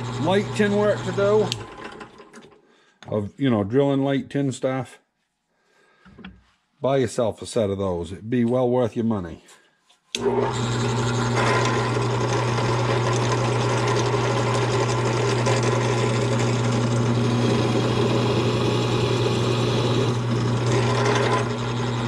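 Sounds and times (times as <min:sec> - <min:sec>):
drill cutting leather: 0:00.0 - 0:02.4, 0:10.2 - 0:22.0.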